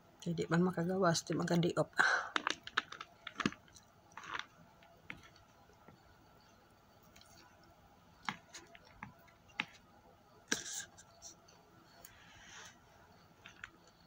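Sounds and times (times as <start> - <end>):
fingers picking food from plastic: 2.3 - 5.4, 8.2 - 9.8.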